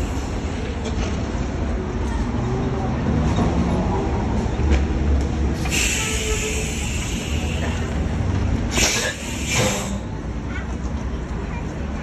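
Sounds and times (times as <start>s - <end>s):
bus engine idling: 0.0s - 3.0s, 5.2s - 12.0s
compressed air hiss: 5.6s - 8.0s, 8.7s - 10.0s.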